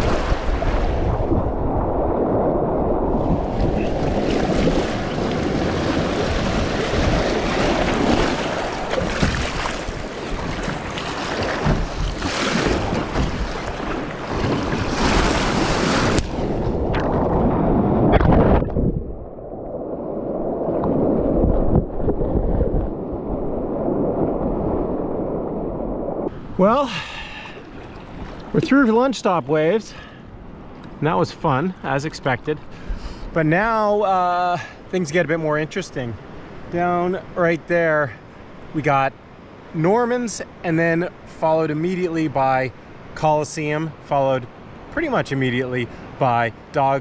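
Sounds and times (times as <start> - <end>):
wind buffeting microphone: 0.0 - 26.6
waves rushing and splashing: 0.0 - 47.0.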